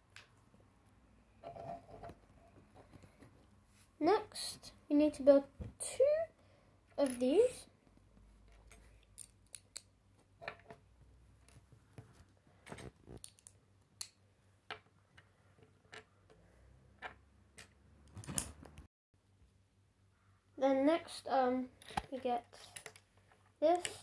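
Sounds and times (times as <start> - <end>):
plastic bricks clicking: 8.7 - 9.9.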